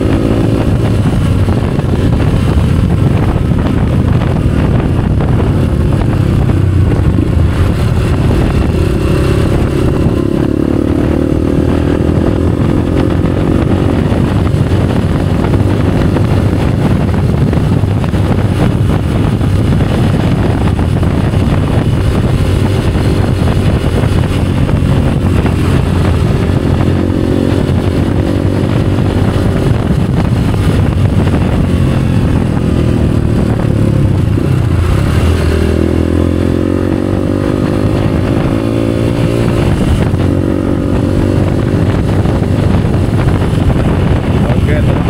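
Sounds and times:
motorcycle engine running: 0.0 - 45.0.

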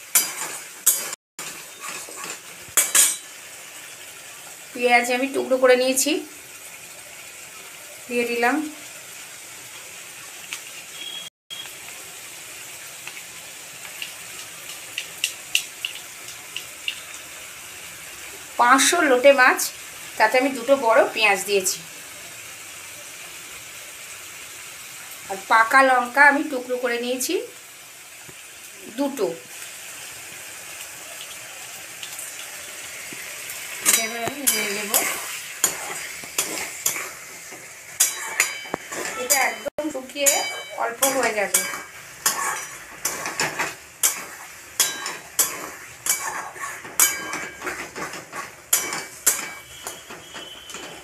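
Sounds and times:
onions sizzling in oil: 0.0 - 51.0
metal spatula scraping pan: 0.1 - 3.3, 33.8 - 51.0
oil crackling and popping: 9.7 - 18.5, 28.2 - 28.8, 29.5 - 51.0.

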